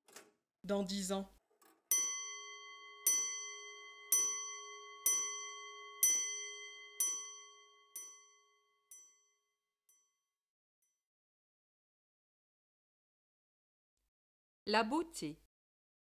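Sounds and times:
bell ringing: 1.9s - 10.1s.

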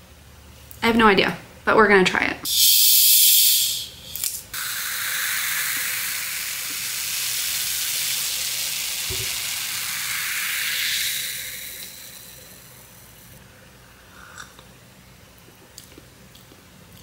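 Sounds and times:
cola fizzing in a glass: 4.6s - 12.8s.

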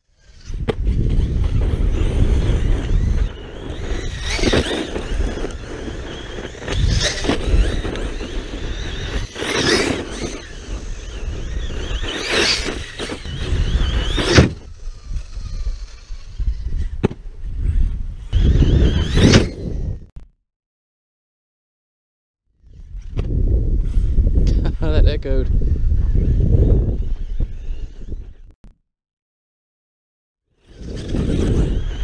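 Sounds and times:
electric motor whining in bursts: 0.0s - 20.1s.

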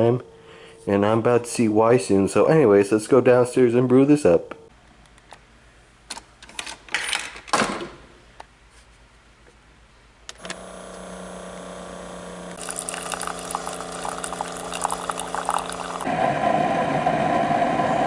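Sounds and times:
coffee machine humming: 10.4s - 18.0s
coffee streaming into mug: 12.6s - 16.1s.

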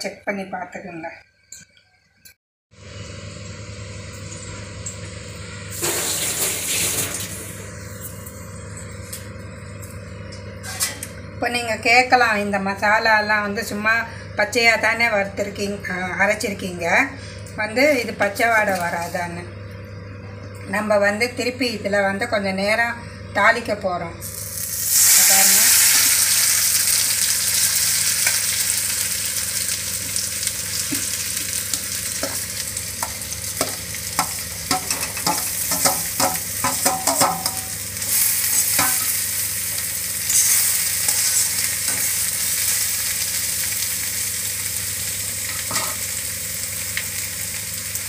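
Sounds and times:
food sizzling in oil: 5.7s - 8.0s, 24.2s - 48.0s.

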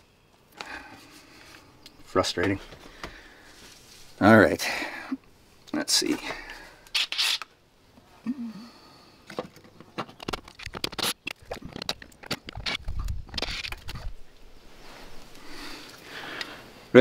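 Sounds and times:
drill bit scraping and clicking on screws: 6.9s - 7.5s.

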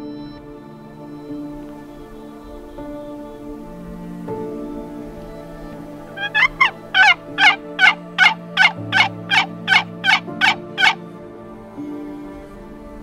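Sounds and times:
turkey call yelps: 6.2s - 11.0s.

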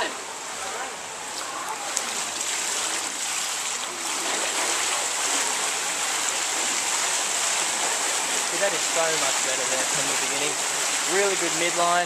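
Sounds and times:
swimmer splashing water: 0.0s - 12.0s.

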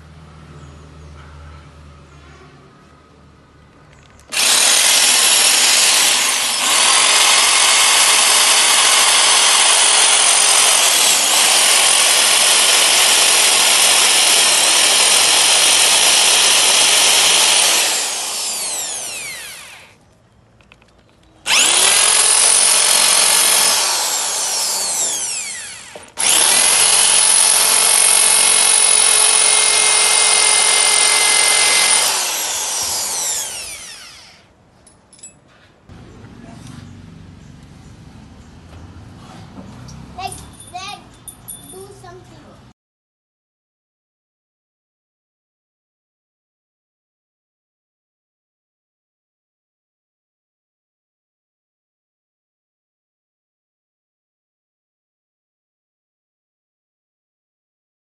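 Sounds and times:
electric drill whining: 4.3s - 20.0s, 21.5s - 34.5s.

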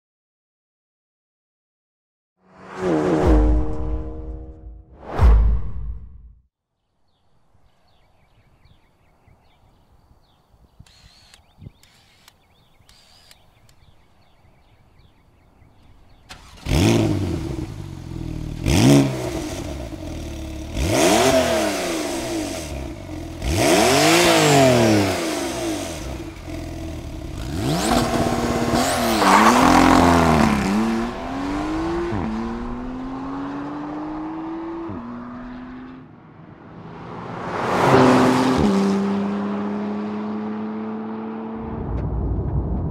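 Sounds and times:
car engine starting: 16.0s - 34.8s
engine revving: 16.2s - 36.1s, 37.3s - 41.9s.

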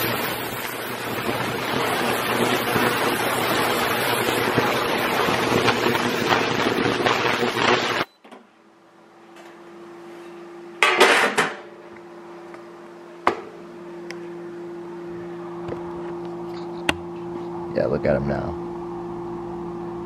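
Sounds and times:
ultrasonic cleaner hissing: 0.0s - 8.1s
steady low hum: 0.0s - 20.0s.

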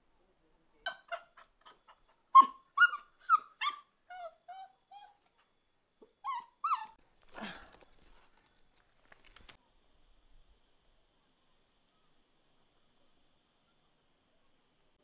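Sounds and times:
puppy whining and yelping: 0.9s - 5.5s, 6.2s - 7.0s.

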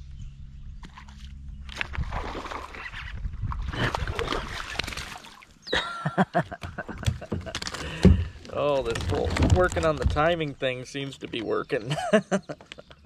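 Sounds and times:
water splashing and sloshing: 0.8s - 5.6s, 6.4s - 11.6s.

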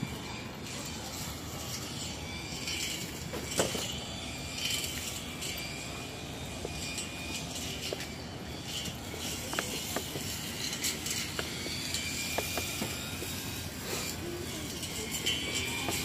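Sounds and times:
low city rumble: 0.0s - 16.0s.

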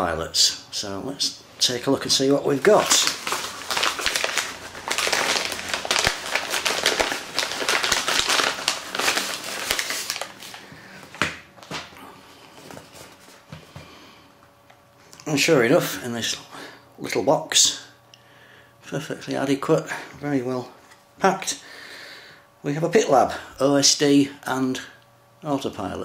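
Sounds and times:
envelope crinkling and rustling: 2.1s - 13.5s
sharp crackle: 2.8s - 10.4s.

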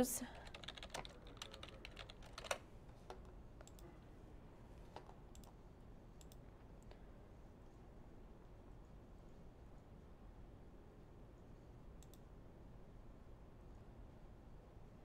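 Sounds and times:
typing on computer keyboard: 0.3s - 3.8s.

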